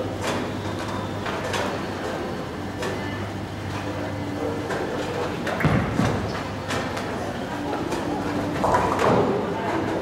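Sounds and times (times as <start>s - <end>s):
bowling ball thud: 5.6s - 6.4s.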